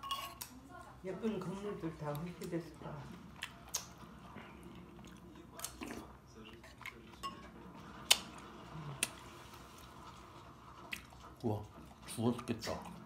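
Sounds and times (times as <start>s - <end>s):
metal spoon clinking on pot: 0.0s - 0.5s.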